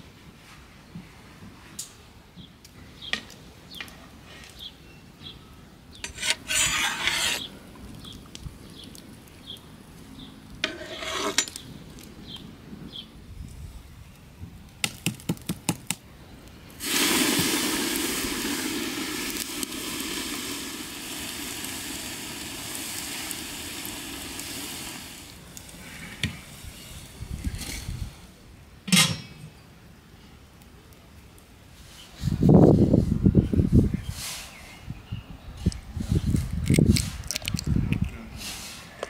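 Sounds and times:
hot log hissing in soup: 0:06.0 - 0:07.5, 0:16.8 - 0:28.2.

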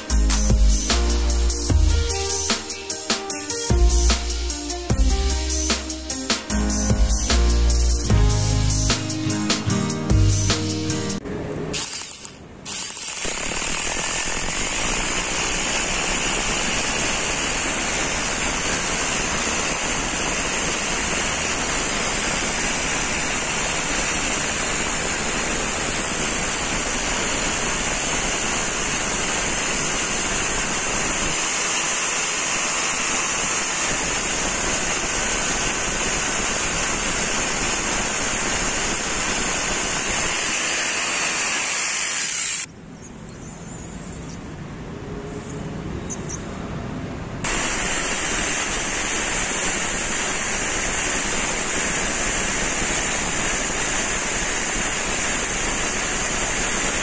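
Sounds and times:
hammer drill boring into concrete: 0:11.8 - 0:42.7, 0:47.5 - 0:57.0.

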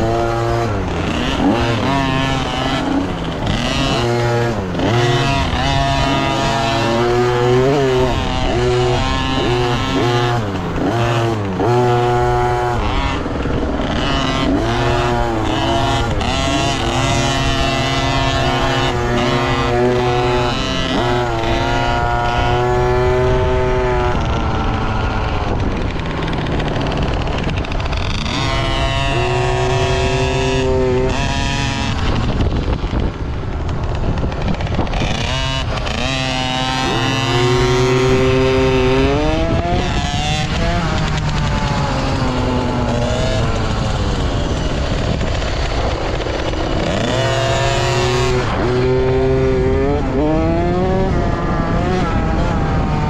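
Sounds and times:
dirt bike engine revving: 0:00.0 - 0:53.0.

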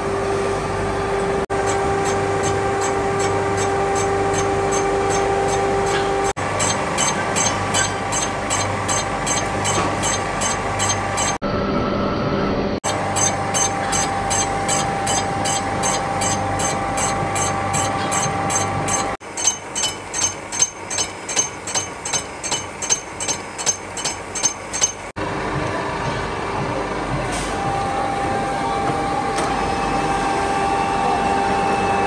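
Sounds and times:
machine hum: 0:00.0 - 0:32.0
machine knocking: 0:02.0 - 0:11.4, 0:13.1 - 0:28.0.

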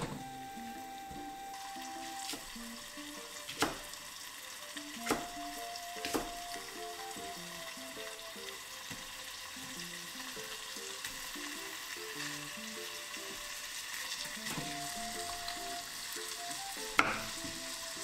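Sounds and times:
frying sizzle in oil: 0:00.0 - 0:18.0
knife chopping on wooden board: 0:03.5 - 0:03.9, 0:05.0 - 0:05.4, 0:06.0 - 0:06.4, 0:14.4 - 0:14.8, 0:16.9 - 0:17.6.

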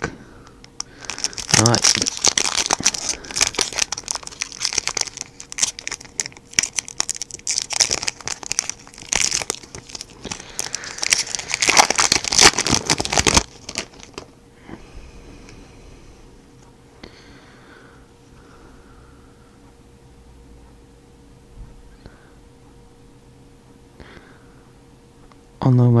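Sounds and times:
foil wrapper crinkling: 0:00.8 - 0:14.3.

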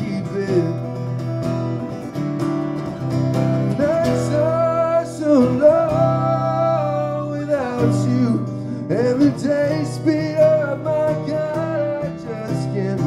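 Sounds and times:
man singing long notes: 0:00.0 - 0:01.0, 0:03.7 - 0:13.0
acoustic guitar strumming: 0:00.0 - 0:13.0.

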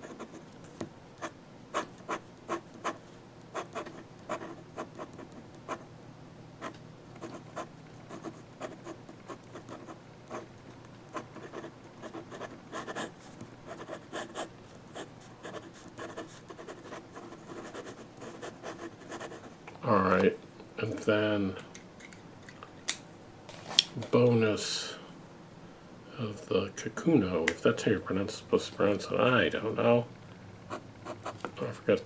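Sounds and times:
pen nib scratching on paper: 0:01.8 - 0:05.8, 0:06.6 - 0:10.4, 0:11.1 - 0:19.5.

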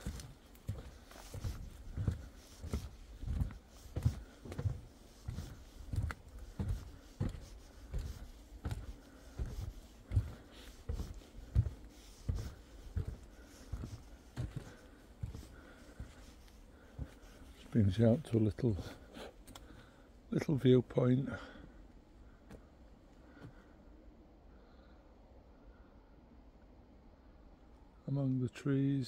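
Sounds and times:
footsteps on wooden boardwalk: 0:00.0 - 0:20.6, 0:21.2 - 0:23.7.

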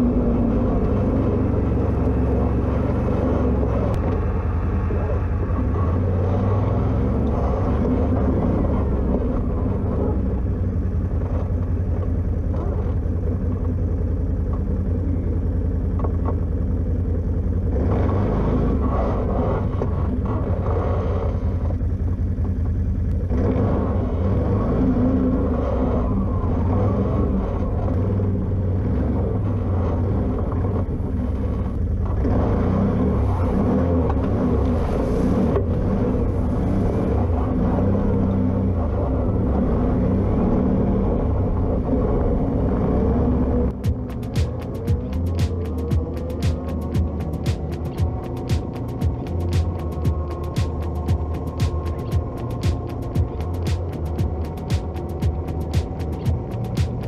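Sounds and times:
atv engine running: 0:00.0 - 0:57.0.

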